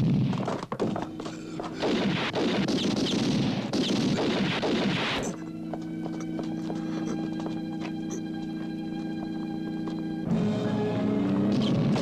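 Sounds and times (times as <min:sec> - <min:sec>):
gunfire: 0:01.8 - 0:05.3
held music chord: 0:05.4 - 0:11.5.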